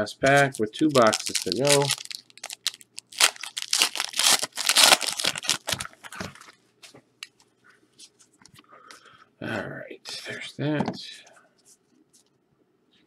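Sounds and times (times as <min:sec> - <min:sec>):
foil wrapper crinkling: 0:00.2 - 0:06.3.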